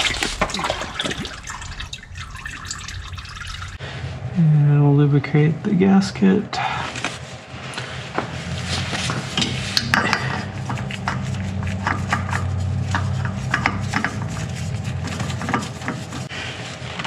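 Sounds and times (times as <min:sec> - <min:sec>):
low hum: 0:00.0 - 0:17.0
gloved hands handling oil filter: 0:07.8 - 0:17.0.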